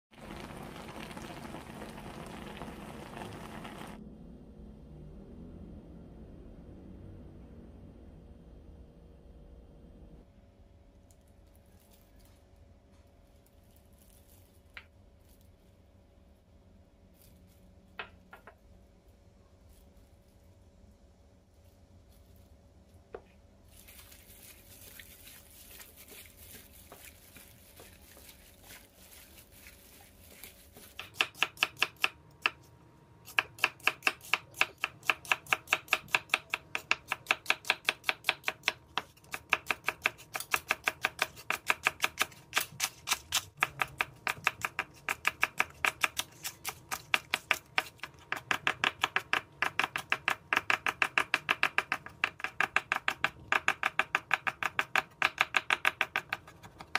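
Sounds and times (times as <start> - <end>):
knife chopping on cutting board: 30.8 - 32.6, 33.3 - 56.9.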